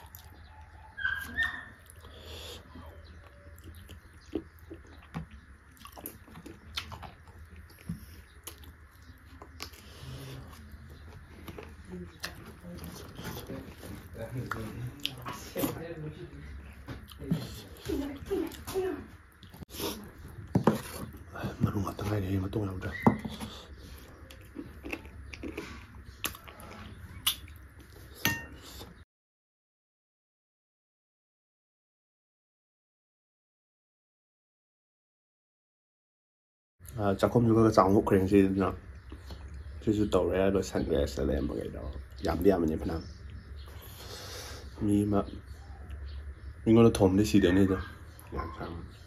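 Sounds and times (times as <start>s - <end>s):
person chewing: 0.0s - 15.8s, 19.3s - 21.7s, 23.3s - 29.0s.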